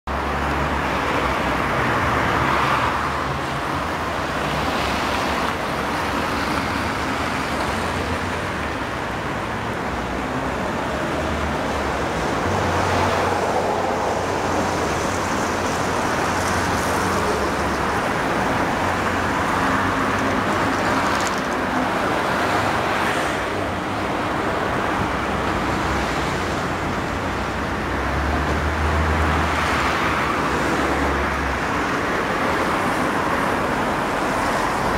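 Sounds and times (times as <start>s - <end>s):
cars passing on wet road: 0.1s - 34.9s.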